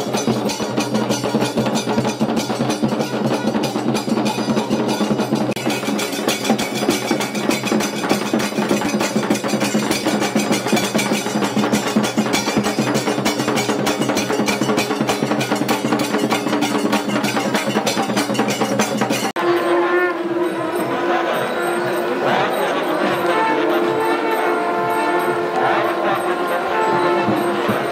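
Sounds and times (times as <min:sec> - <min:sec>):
barrel drums playing fast rhythm: 0:00.0 - 0:19.4
brass hand cymbals clashing: 0:00.0 - 0:27.9.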